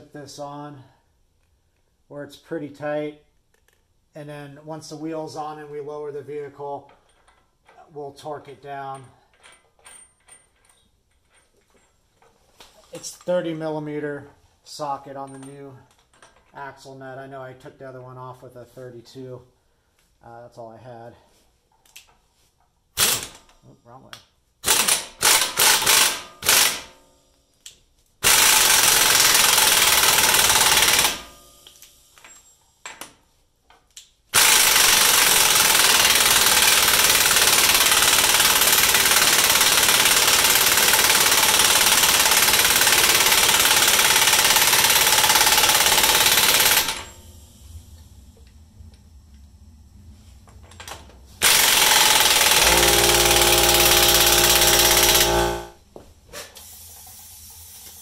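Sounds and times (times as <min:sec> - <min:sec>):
impact wrench hammering: 0:24.6 - 0:26.9, 0:28.2 - 0:31.8, 0:34.4 - 0:47.2, 0:51.4 - 0:55.8.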